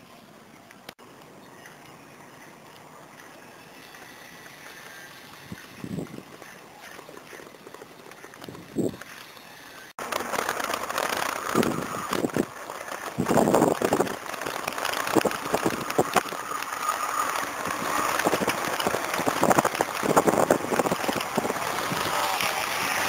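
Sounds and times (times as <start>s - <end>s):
bicycle rattles and knocks: 3.8s - 23.0s
wind buffeting microphone: 5.4s - 6.5s, 7.4s - 9.1s, 11.0s - 23.0s.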